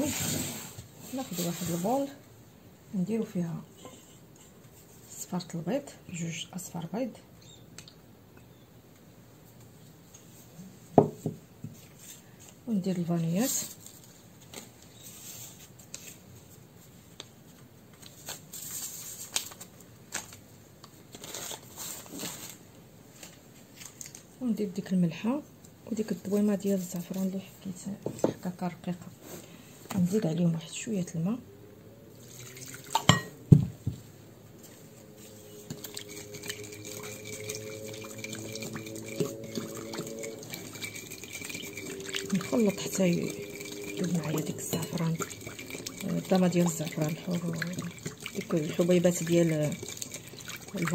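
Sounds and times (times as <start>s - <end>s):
paper and plastic rustling: 13.4s - 24.4s
liquid sloshing: 32.2s - 33.5s, 35.0s - 50.9s
sugar shaken into glass bowl: 35.7s - 50.9s.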